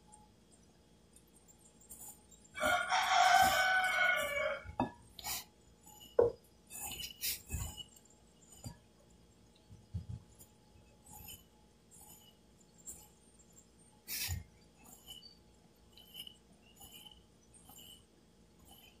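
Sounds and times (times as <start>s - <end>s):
rooster crowing: 2.6s - 4.8s.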